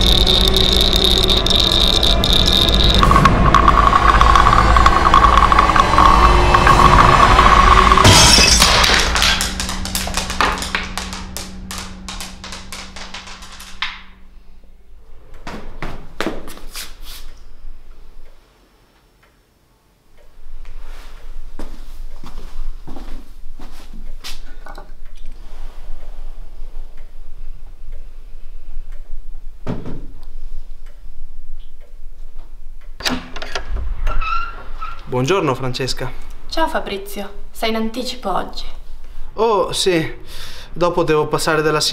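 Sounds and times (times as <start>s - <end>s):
loud sharp sound: 0.0s - 12.5s
low steady hum: 0.0s - 16.2s.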